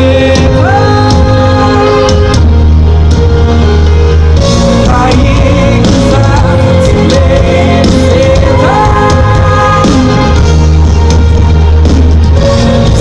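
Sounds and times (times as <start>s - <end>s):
man singing: 0.0s - 2.2s, 4.7s - 10.4s
live band music over loudspeakers: 0.0s - 13.0s.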